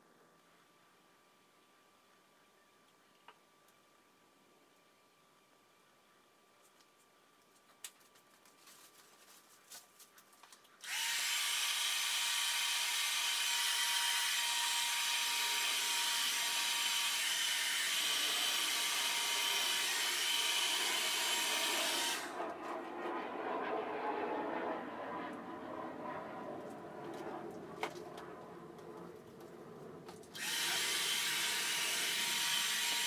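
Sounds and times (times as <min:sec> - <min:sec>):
soft rubbing sounds: 0:06.5 - 0:10.8
hair dryer blowing: 0:10.8 - 0:22.4, 0:30.4 - 0:33.0.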